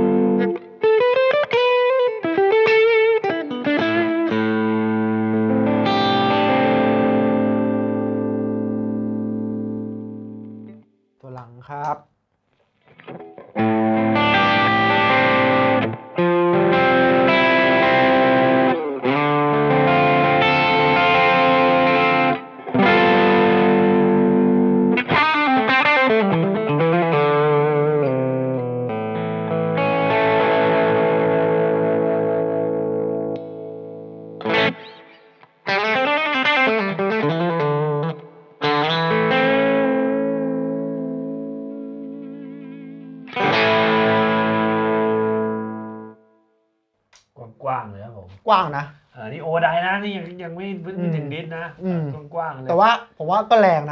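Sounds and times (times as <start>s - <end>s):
distorted electric guitar: 0.0s - 10.8s, 12.8s - 46.2s.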